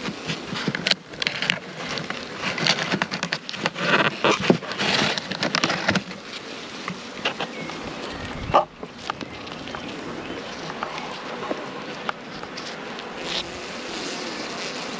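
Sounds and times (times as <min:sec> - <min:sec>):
cardboard box rustling and clicking: 0:00.0 - 0:07.8
honeybees buzzing: 0:00.0 - 0:14.9.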